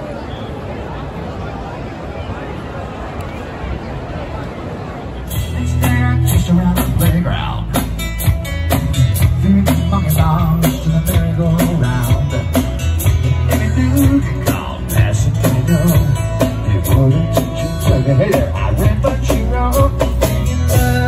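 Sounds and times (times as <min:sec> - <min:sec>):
bass drum and cymbal beat: 0:05.3 - 0:21.0
strummed acoustic guitar: 0:05.3 - 0:21.0
person singing: 0:05.4 - 0:07.8, 0:08.8 - 0:21.0.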